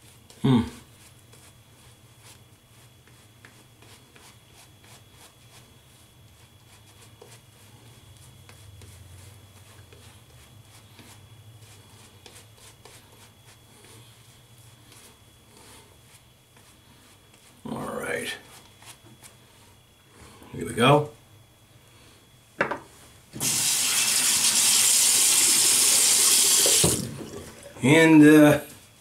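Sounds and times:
shaving brush rubbing stubble: 0.0s - 19.9s
low steady hum: 0.0s - 23.4s.

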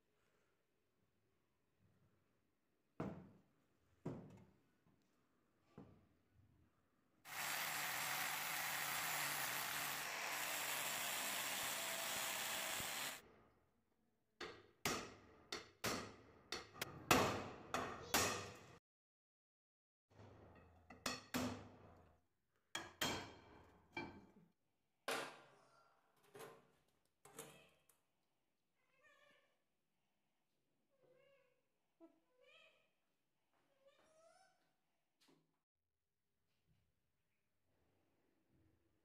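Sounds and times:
angle grinder grinding metal: 7.3s - 13.2s.

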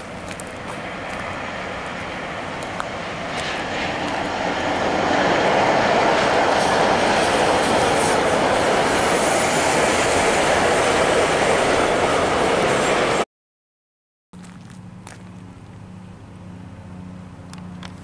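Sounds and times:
loud rushing noise: 0.8s - 13.2s.

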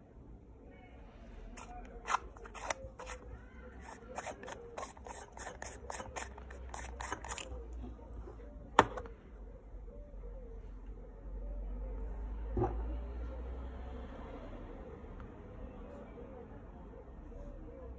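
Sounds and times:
metal lens parts clicking and scraping: 1.6s - 7.5s.

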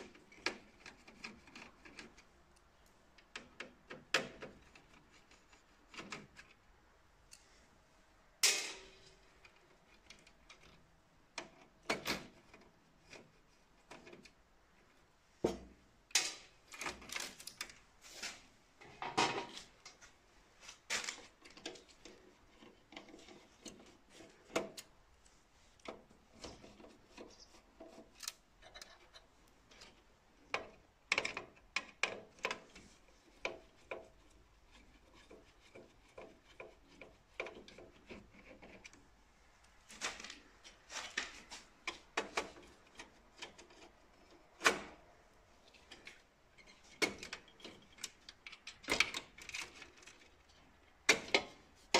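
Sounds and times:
clicks and knocks on sheet metal: 3.2s - 6.5s, 8.4s - 14.3s, 15.4s - 17.8s, 25.8s - 39.0s, 39.8s - 45.1s, 45.7s - 51.7s.

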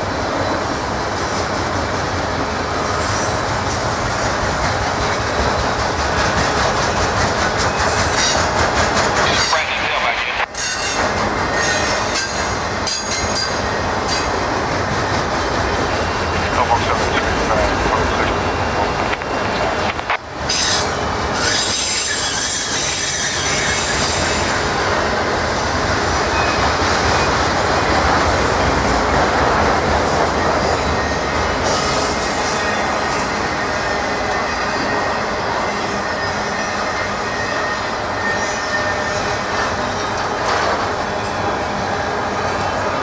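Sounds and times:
train wheels rumbling on rail: 0.0s - 43.0s
high wheel squeal: 10.5s - 14.3s, 20.5s - 24.6s, 29.8s - 39.4s.

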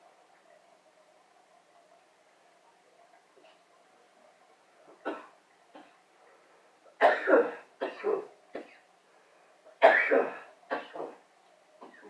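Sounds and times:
person coughing: 7.0s - 8.8s.

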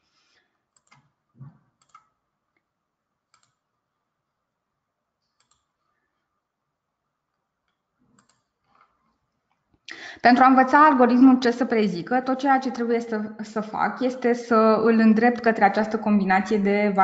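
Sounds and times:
computer mouse clicks: 0.7s - 2.2s, 3.3s - 3.7s, 5.3s - 5.8s, 7.6s - 9.6s.

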